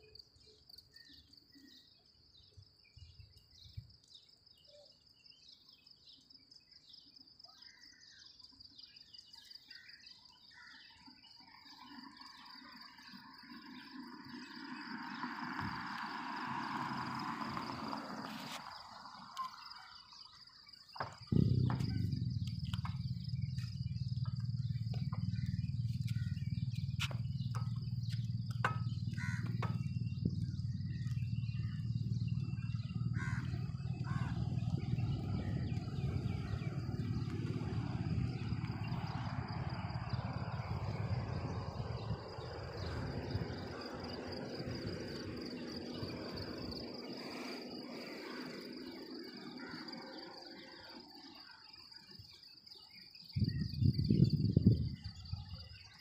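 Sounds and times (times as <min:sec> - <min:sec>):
insects chirring: 0:00.0 - 0:56.0
low rumble: 0:21.2 - 0:46.8.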